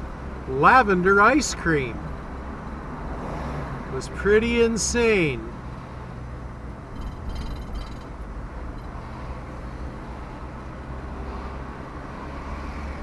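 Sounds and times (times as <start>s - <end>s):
road noise: 0.0s - 13.0s
vehicle engine humming: 0.0s - 13.0s.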